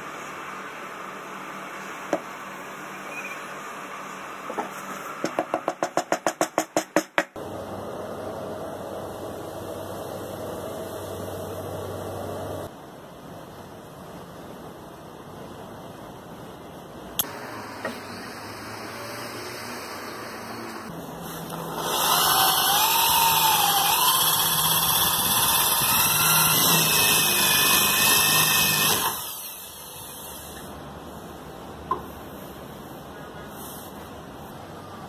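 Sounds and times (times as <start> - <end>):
electric drill boring into wood: 21.6 - 29.8.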